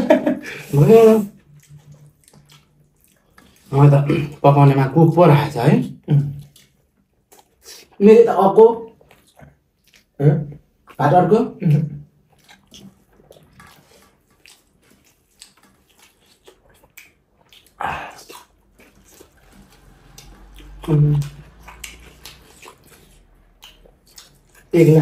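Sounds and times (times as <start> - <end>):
eating by hand clicks and smacks: 1.4 - 3.8, 6.2 - 8.0, 8.9 - 11.0, 12.0 - 25.0.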